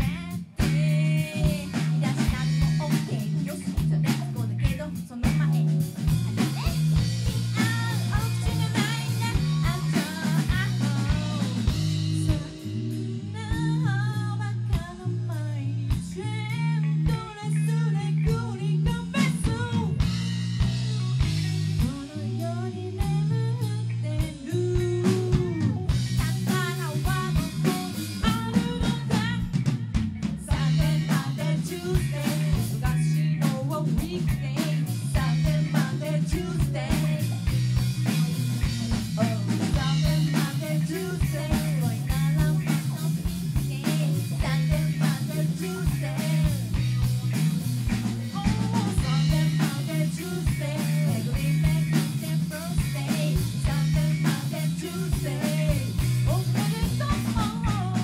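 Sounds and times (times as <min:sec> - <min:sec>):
woman singing: 0:00.0 - 0:06.8, 0:07.4 - 0:20.2, 0:21.0 - 0:29.6, 0:30.4 - 0:37.6, 0:39.0 - 0:58.0
drum kit: 0:00.0 - 0:58.0
electric bass: 0:00.0 - 0:58.0
electric guitar: 0:00.0 - 0:58.0.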